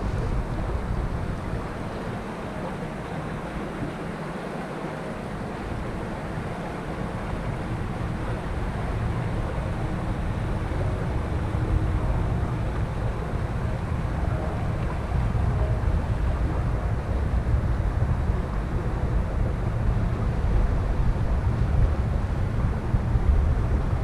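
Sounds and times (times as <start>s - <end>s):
wind buffeting microphone: 7.0s - 24.0s.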